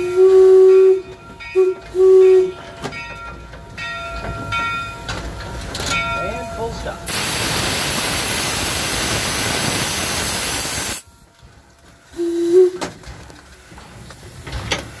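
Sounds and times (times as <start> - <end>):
steam hissing loudly: 7.1 - 11.0.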